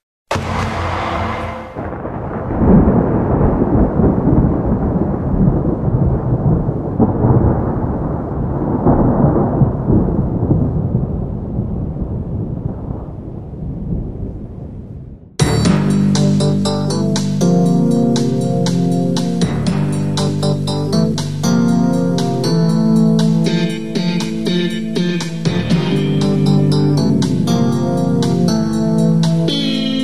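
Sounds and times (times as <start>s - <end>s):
rolling rumble of thunder: 0.3s - 15.4s, 21.0s - 29.5s.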